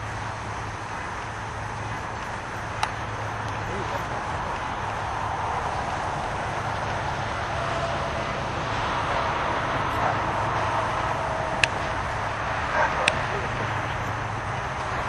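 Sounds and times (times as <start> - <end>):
outdoor background noise: 0.0 - 15.0
sharp crack: 9.8 - 14.0.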